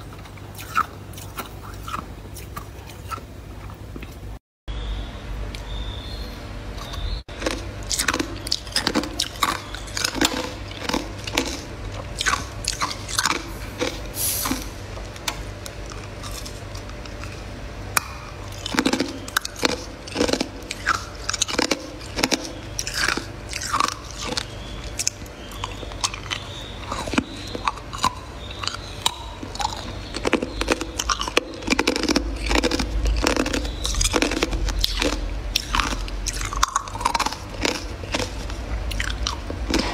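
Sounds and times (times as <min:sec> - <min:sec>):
steady low hum: 0:00.0 - 0:39.9
person crunching ice: 0:29.6 - 0:39.9.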